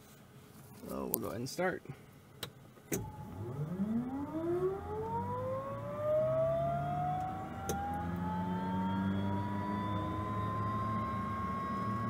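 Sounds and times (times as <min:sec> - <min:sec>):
turboprop starter whine rising: 0:03.0 - 0:12.0.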